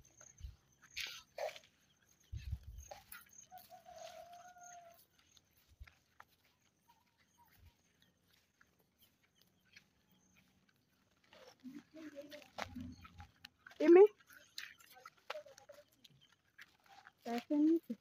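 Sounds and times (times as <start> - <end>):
distant farm animal call: 2.9 - 5.3.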